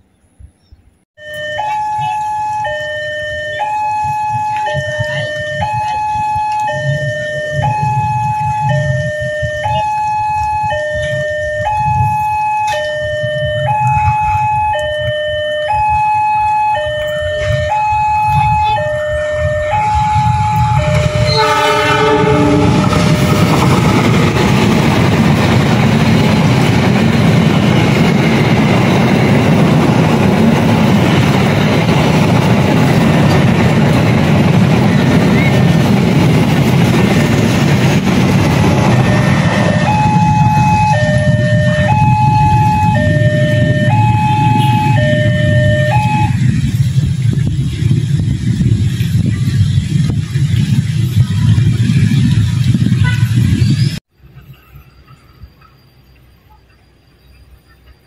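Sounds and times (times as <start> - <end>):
level crossing two-tone alarm: 1.2 - 24.1, 38.8 - 46.6
train passing with wheel noise: 1.2 - 58.0
train horn: 19.0 - 23.4, 44.4 - 46.4.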